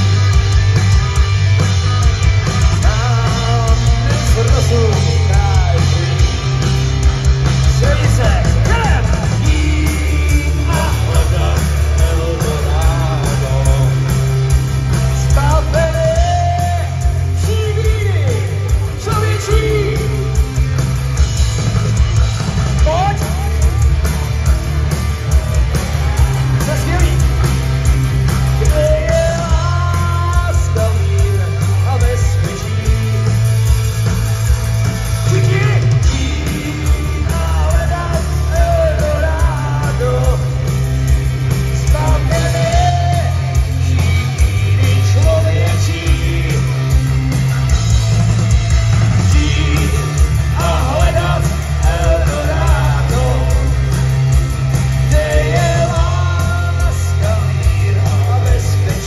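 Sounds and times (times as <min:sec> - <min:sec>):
electric guitars: 0:00.0 - 0:59.0
heavy pulsing bass: 0:00.0 - 0:59.0
person singing: 0:07.8 - 0:14.2, 0:55.0 - 0:59.0.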